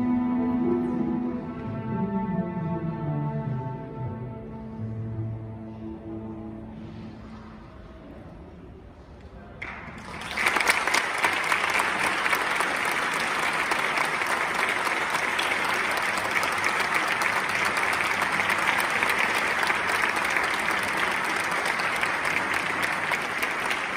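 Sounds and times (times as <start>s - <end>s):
audience applauding: 9.6s - 23.9s.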